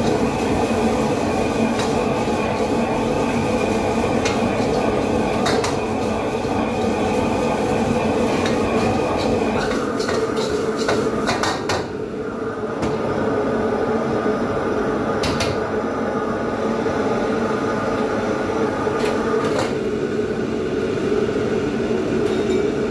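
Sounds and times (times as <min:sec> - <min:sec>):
burner and exhaust hood rushing: 0:00.0 - 0:11.9.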